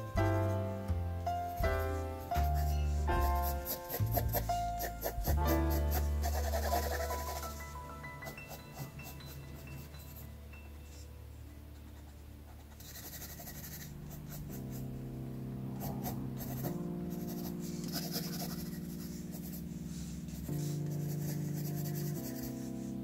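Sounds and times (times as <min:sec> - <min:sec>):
background music with held chords: 0:00.0 - 0:23.0
pencil scratching on paper: 0:02.3 - 0:10.3, 0:11.9 - 0:14.9, 0:15.8 - 0:23.0.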